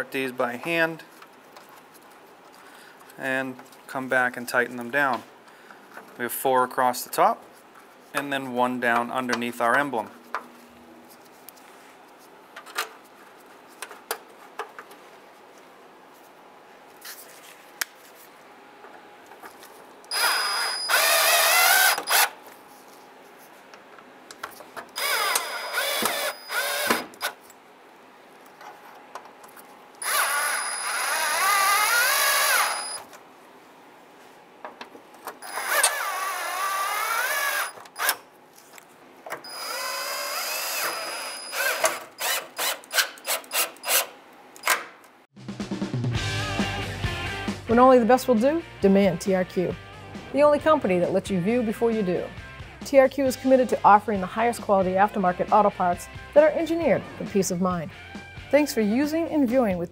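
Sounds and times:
cordless drill driving screws: 0:20.1 - 0:22.3, 0:25.0 - 0:27.3, 0:30.0 - 0:33.0, 0:35.4 - 0:38.2, 0:39.4 - 0:44.1.

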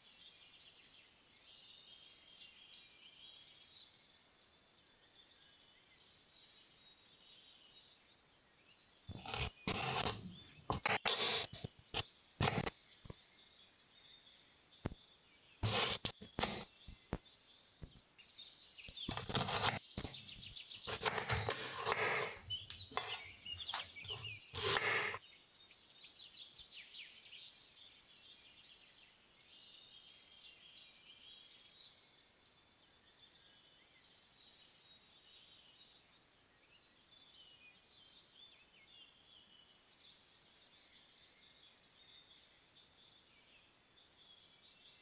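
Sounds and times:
knife slicing carrot on board: 0:09.1 - 0:11.7, 0:12.4 - 0:12.7, 0:15.6 - 0:16.7, 0:19.0 - 0:25.2.

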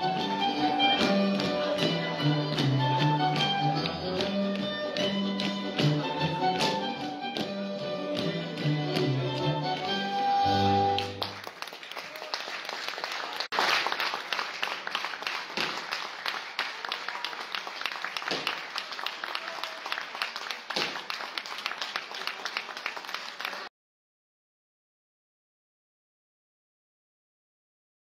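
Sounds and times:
dance band music: 0:00.0 - 0:11.4
audience applause: 0:10.8 - 0:23.7.

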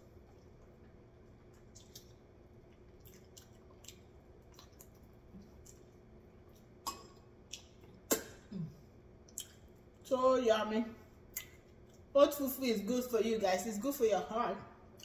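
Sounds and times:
wet mouth clicks and chewing: 0:00.2 - 0:08.5, 0:09.2 - 0:10.0, 0:11.3 - 0:12.1
sharp mouth clicks: 0:06.8 - 0:08.5, 0:09.3 - 0:09.6.

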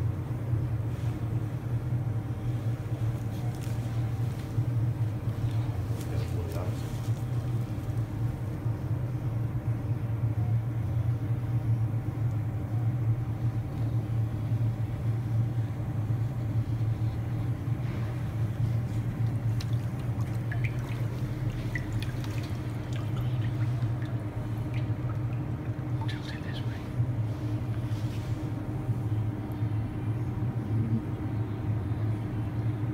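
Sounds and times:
low machinery hum: 0:00.0 - 0:32.9
water splashing and dripping: 0:19.1 - 0:26.2.

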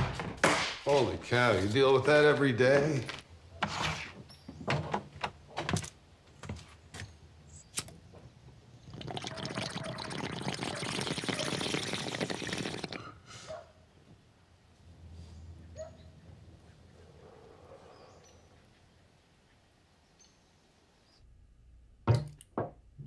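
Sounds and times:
water bubbling in a bong: 0:08.8 - 0:13.0.

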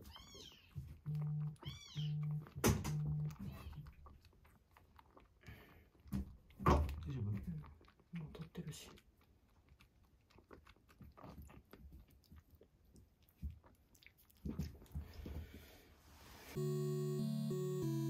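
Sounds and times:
kitten suckling from bottle: 0:00.0 - 0:15.7
music: 0:16.6 - 0:18.0.

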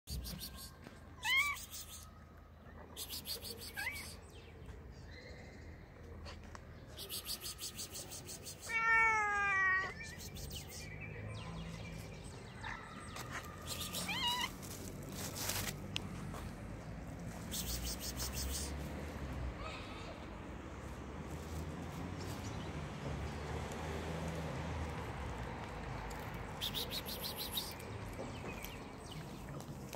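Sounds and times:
cats meowing: 0:01.2 - 0:01.8, 0:08.6 - 0:10.0, 0:13.7 - 0:14.7.

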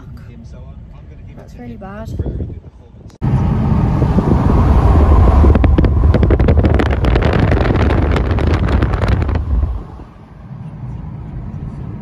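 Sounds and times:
wind buffeting microphone: 0:01.9 - 0:10.2
car road rumble: 0:03.2 - 0:12.0.

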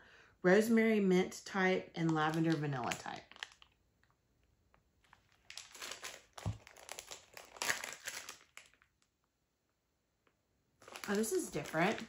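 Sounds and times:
plastic bag crinkling: 0:02.0 - 0:09.1, 0:10.8 - 0:12.0.

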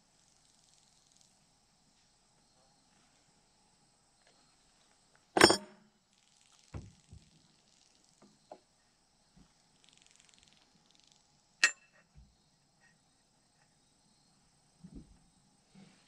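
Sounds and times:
metal tools clinking and knocking: 0:05.4 - 0:05.7.

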